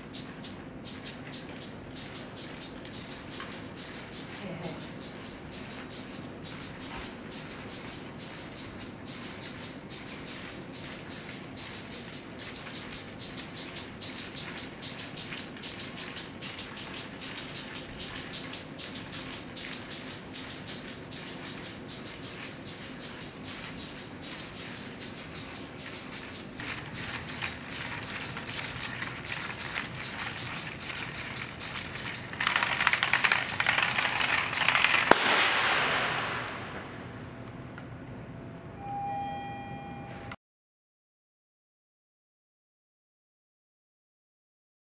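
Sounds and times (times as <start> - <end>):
toy train clattering on track: 0.0 - 36.1
air motor chuffing hiss: 26.6 - 37.3
hose popping off: 33.5 - 37.2
rush of escaping gas: 35.1 - 37.2.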